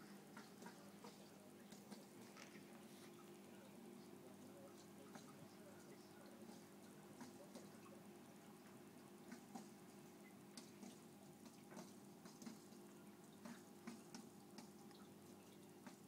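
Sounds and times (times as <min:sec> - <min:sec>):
aquarium equipment hum: 0:00.0 - 0:16.0
water drips: 0:00.0 - 0:16.0.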